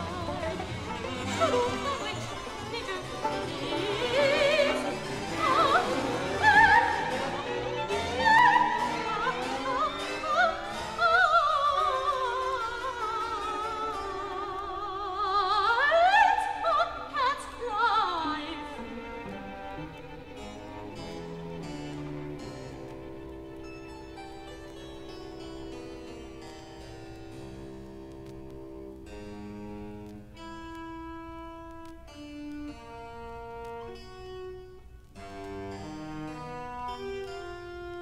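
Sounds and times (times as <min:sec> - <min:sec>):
soprano singing with vibrato: 0:00.0 - 0:19.6
string ensemble with harpsichord: 0:00.0 - 0:38.0.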